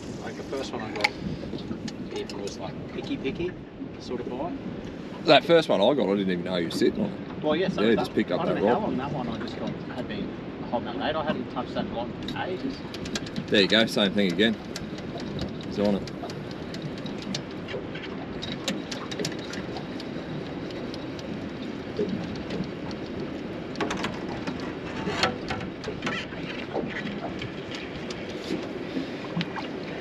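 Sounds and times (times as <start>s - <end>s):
water lapping against boat hull: 0.0s - 30.0s
light clicks and knocks: 12.2s - 21.4s, 22.0s - 28.7s.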